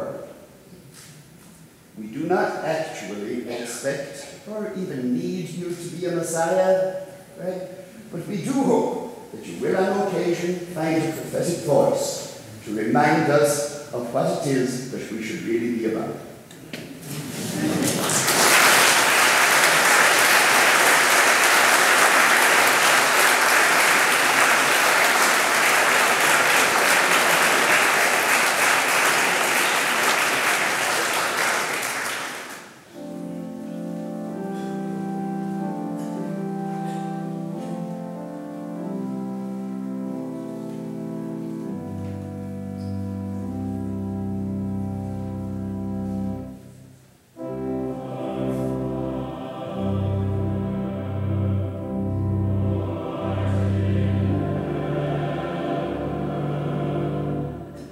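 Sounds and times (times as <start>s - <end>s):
church organ chords: 2.0s - 16.4s, 17.3s - 57.9s
audience applauding: 17.2s - 32.9s.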